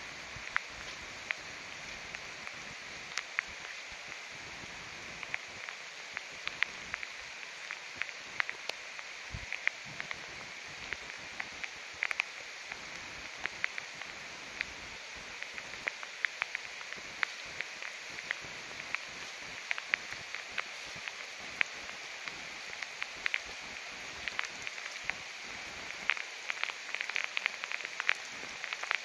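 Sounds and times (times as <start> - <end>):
raindrops hitting close by: 0.0 - 29.0
steady rain hiss: 0.0 - 29.0.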